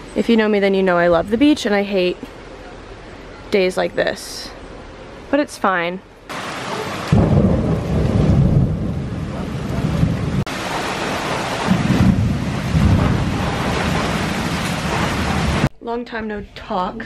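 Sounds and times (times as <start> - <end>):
heavy rain on wooden deck: 6.3 - 15.7.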